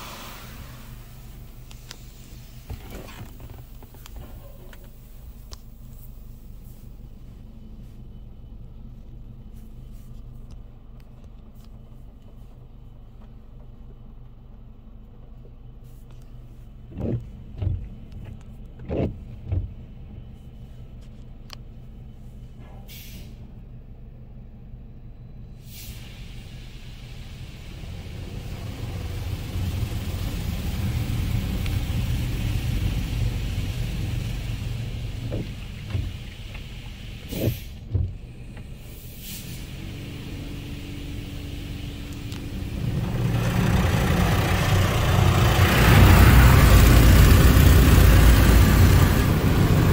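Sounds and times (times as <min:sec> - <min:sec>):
car wash machinery hum: 0:00.0 - 0:22.8, 0:23.4 - 0:49.9
water spray drumming on car: 0:27.2 - 0:38.2.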